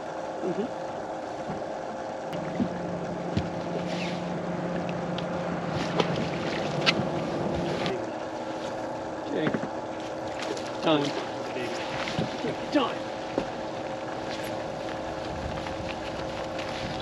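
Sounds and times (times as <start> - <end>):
boat low hum: 0.0 - 17.0
wind noise: 15.1 - 17.0.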